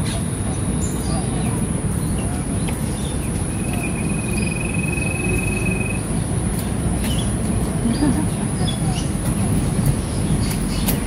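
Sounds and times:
insects droning: 0:03.0 - 0:06.2
thin high trill: 0:03.6 - 0:06.1.

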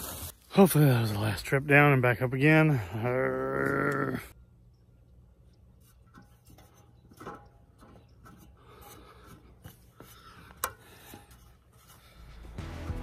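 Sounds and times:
climbing a metal ladder: 0:05.7 - 0:12.0.

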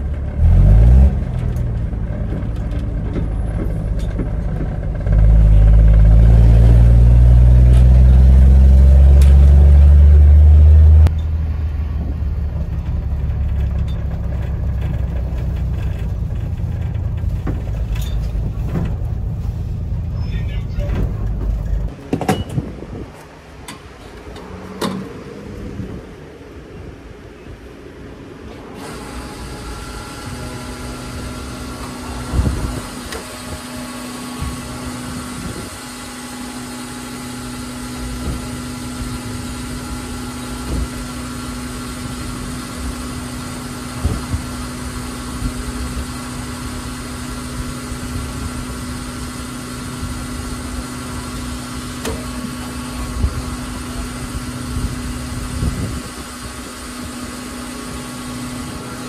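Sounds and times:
bus engine rumbling: 0:00.0 - 0:59.0.

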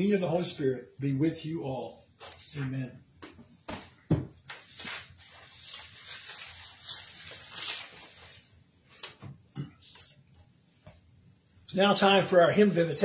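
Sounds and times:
paper sheets rustling: 0:02.2 - 0:10.3.

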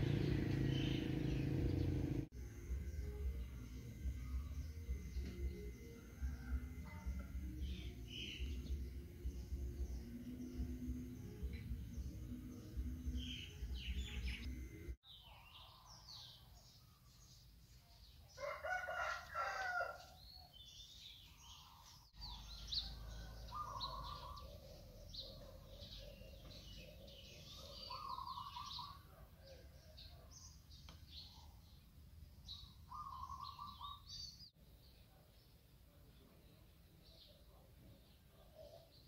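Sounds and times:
small birds chirping: 0:00.0 - 0:02.3, 0:20.1 - 0:39.0
rooster crowing: 0:18.4 - 0:20.2, 0:22.2 - 0:24.5.

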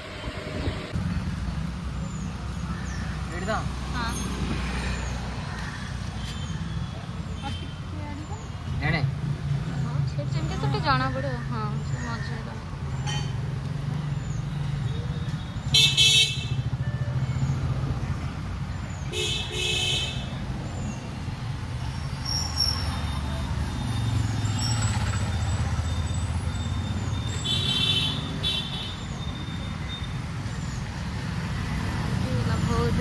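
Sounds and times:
road traffic: 0:00.0 - 0:33.0
vehicle horns honking: 0:15.6 - 0:16.8, 0:19.1 - 0:20.3, 0:27.3 - 0:29.1.

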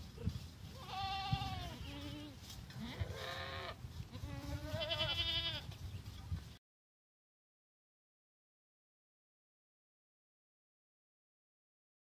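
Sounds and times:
lamb bleating: 0:00.8 - 0:05.7.

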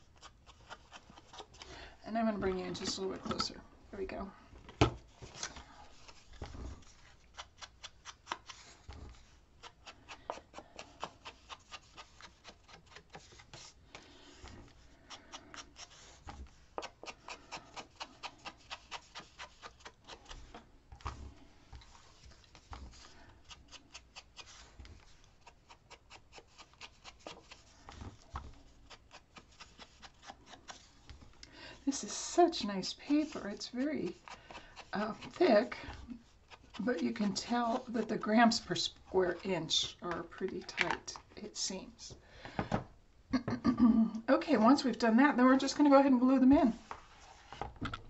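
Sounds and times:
ink blending tool brushing paper: 0:31.9 - 0:40.9.

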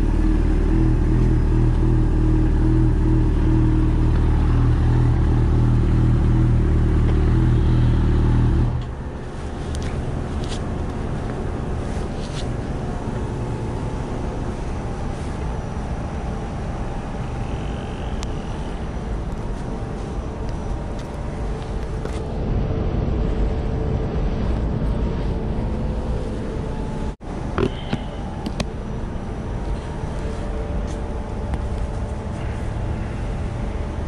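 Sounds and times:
motorcycle engine running: 0:00.0 - 0:14.8.

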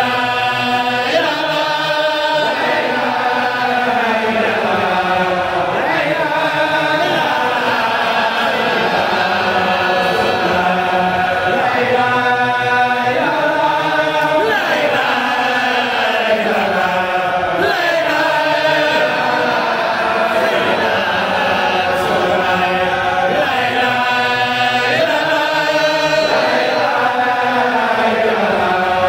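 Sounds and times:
men chanting in unison: 0:00.0 - 0:29.0.

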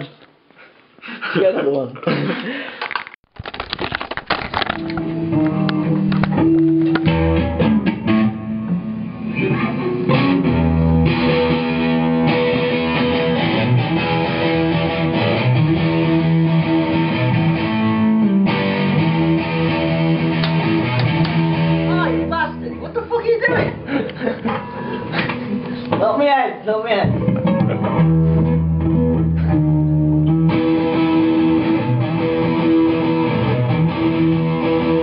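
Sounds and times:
electric guitar through amplifier: 0:03.4 - 0:22.8, 0:27.0 - 0:35.0.

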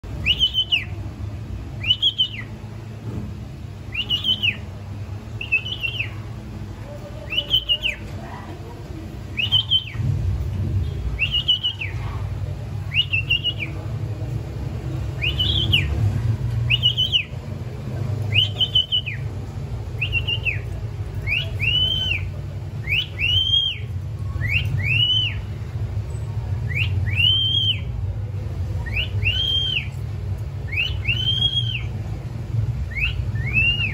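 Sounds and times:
cockatiel whistling: 0:00.2 - 0:01.0, 0:01.8 - 0:02.5, 0:03.9 - 0:04.6, 0:05.4 - 0:06.2, 0:07.3 - 0:08.0, 0:09.4 - 0:10.0, 0:11.2 - 0:12.0, 0:12.9 - 0:13.8, 0:15.2 - 0:16.0, 0:16.7 - 0:17.4, 0:18.3 - 0:19.3, 0:20.0 - 0:25.5, 0:26.7 - 0:27.9, 0:28.8 - 0:30.0, 0:30.7 - 0:31.9, 0:32.9 - 0:33.9.

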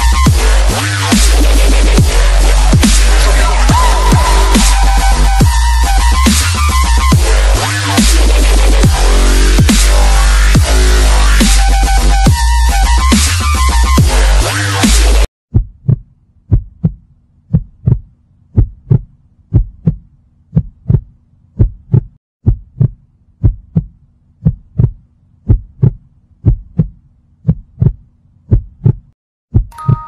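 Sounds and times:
electronic dubstep music: 0:00.0 - 0:15.3
heartbeat thumps: 0:15.5 - 0:29.8
chime-like tones: 0:29.7 - 0:30.0.

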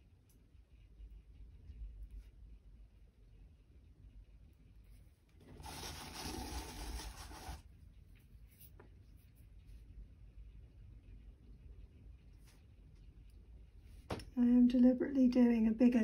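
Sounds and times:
board scraping across cutting mat: 0:05.5 - 0:07.6.

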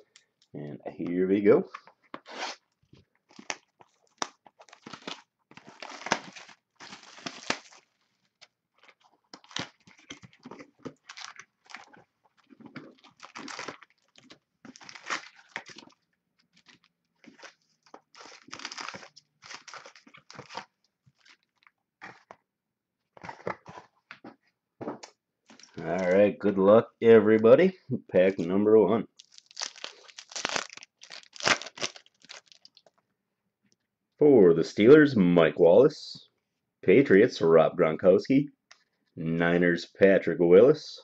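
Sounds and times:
cardboard and wrappers crinkling: 0:03.2 - 0:22.4, 0:29.2 - 0:33.0.

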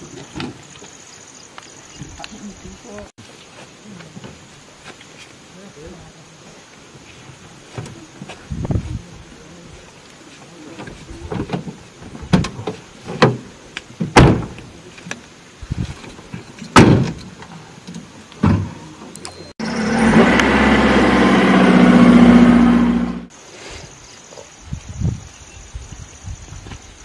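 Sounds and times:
car door knocks and thumps: 0:14.0 - 0:14.6
car engine running: 0:19.6 - 0:23.3.

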